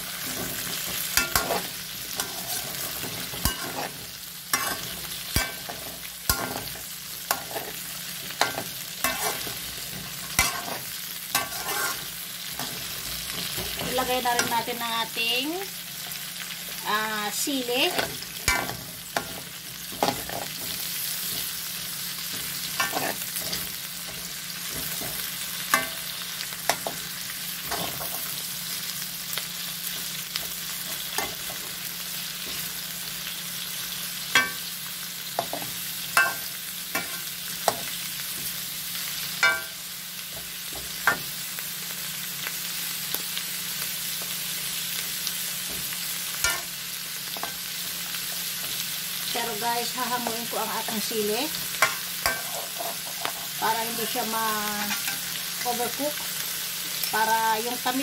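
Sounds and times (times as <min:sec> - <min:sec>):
vegetables sizzling in a wok: 0:00.0 - 0:58.0
metal ladle scraping a wok: 0:00.2 - 0:04.0, 0:04.6 - 0:07.8, 0:08.4 - 0:12.9, 0:22.7 - 0:23.7.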